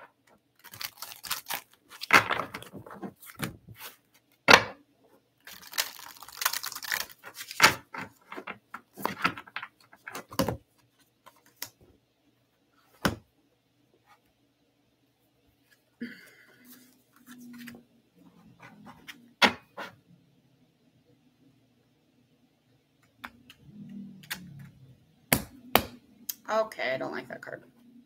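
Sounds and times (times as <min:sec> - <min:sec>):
cards rustling and sliding: 0:00.6 - 0:04.2, 0:05.5 - 0:10.4.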